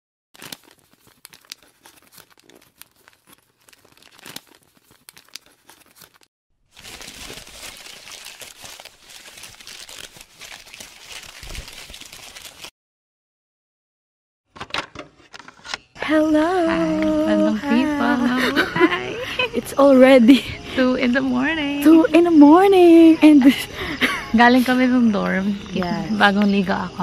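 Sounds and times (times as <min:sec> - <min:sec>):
paper crumpling: 0:00.4 - 0:12.7.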